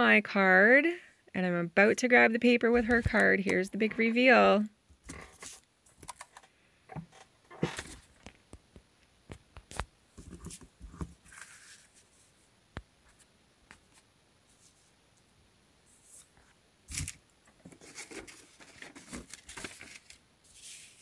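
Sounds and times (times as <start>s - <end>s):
paper rustling: 5.0s - 6.5s, 9.7s - 12.3s, 16.0s - 21.0s.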